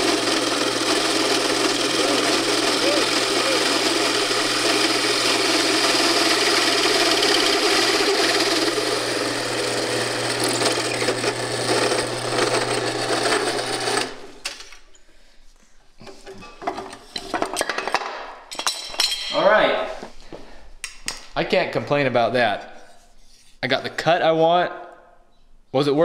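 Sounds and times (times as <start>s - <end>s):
hole saw grinding metal: 0.0s - 14.3s
drill press motor hum: 0.0s - 14.4s.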